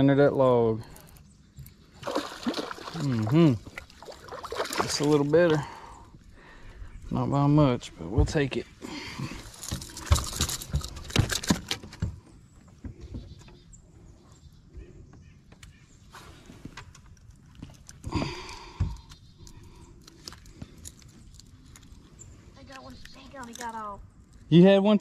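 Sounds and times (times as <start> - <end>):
fish flopping on boat deck: 8.9 - 12.2.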